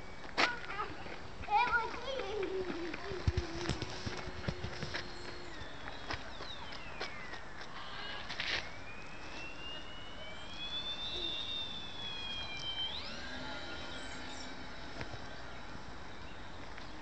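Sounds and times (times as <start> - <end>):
model plane motor whine: 3.2 - 17.0.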